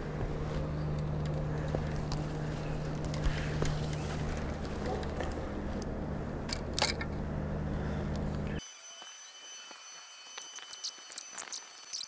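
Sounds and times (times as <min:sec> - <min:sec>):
steady low hum: 0:00.0 - 0:08.6.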